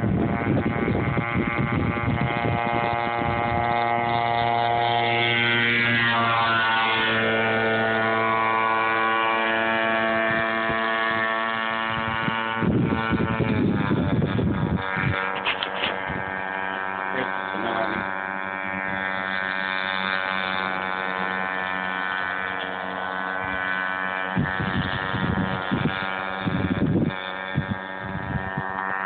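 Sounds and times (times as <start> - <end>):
model boat motor buzzing whine: 0.0 - 29.0.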